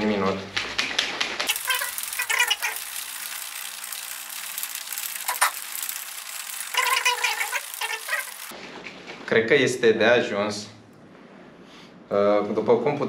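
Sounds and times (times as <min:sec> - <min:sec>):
liquid sloshing in shaker cup: 0:01.4 - 0:08.5.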